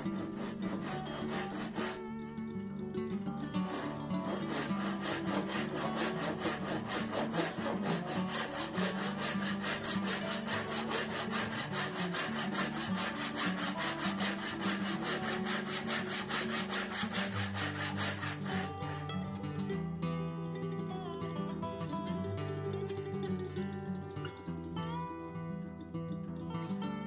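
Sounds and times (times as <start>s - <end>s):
hand saw rasping through wood: 0.0s - 2.2s, 3.4s - 19.2s.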